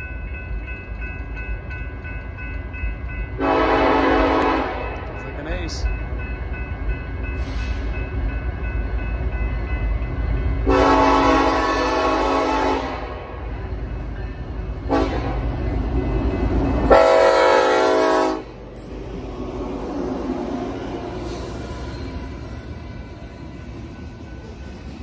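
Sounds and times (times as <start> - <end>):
diesel locomotive rumble: 0.0 - 25.0
locomotive air horn blasts: 3.4 - 5.0, 10.7 - 13.2, 14.9 - 15.4, 16.9 - 18.5.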